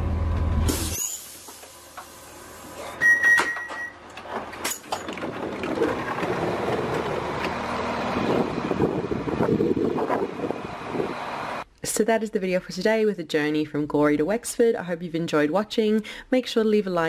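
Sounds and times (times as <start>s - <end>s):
train door warning beep: 3.0s - 4.0s
diesel train idling: 6.2s - 11.6s.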